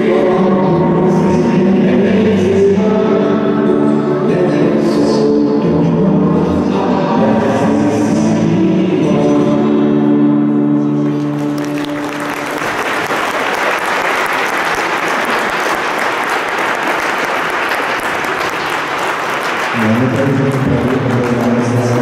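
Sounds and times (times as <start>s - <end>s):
audience applause: 11.0s - 22.0s.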